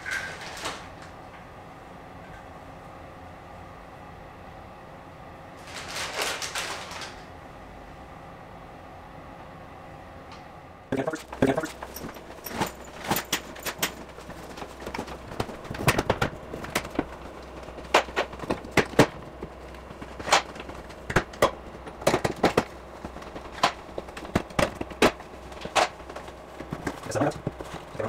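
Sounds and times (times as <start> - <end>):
luggage bags being lifted: 11.2 - 28.0.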